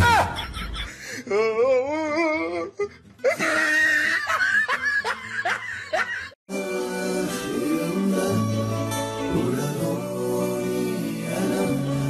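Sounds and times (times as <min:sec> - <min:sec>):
person laughing: 0:00.0 - 0:06.4
background music: 0:03.3 - 0:12.0
song with instruments: 0:06.5 - 0:12.0.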